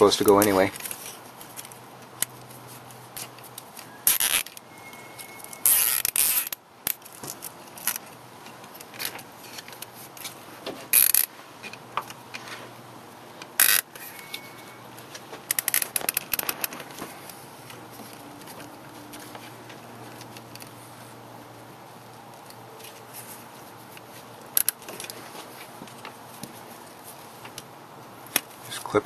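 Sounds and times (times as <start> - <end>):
cable ties scraping rustles: 0.0 - 21.2, 22.1 - 29.0
cable tie ratcheting clicks: 3.2 - 4.6, 5.2 - 10.3, 10.9 - 11.3, 13.4 - 14.0, 15.5 - 17.4, 24.5 - 25.2.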